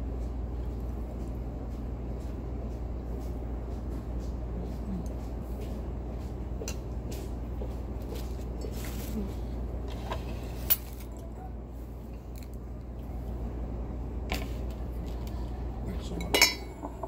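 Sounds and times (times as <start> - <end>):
steady low hum: 0.0 - 17.0
utensils clinking against dishes: 16.0 - 17.0.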